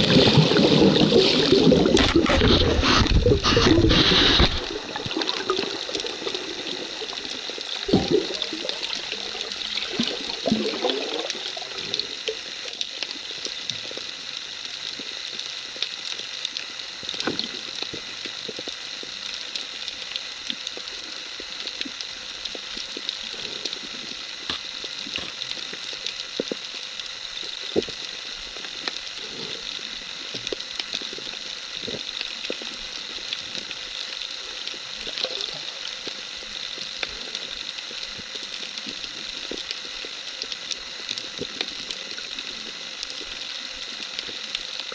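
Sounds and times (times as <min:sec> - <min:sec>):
bubbling: 0:00.0 - 0:14.1
underwater hiss: 0:00.0 - 0:44.9.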